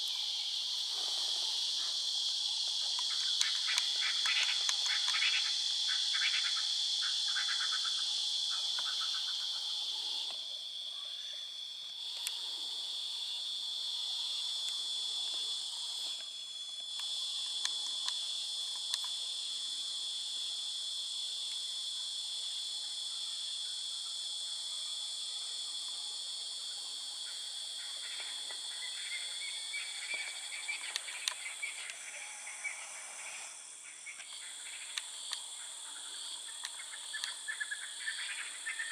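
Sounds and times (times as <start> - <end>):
crickets and insects chirping: 0.0 - 38.9
frogs calling in trills: 1.5 - 12.4, 22.9 - 38.9.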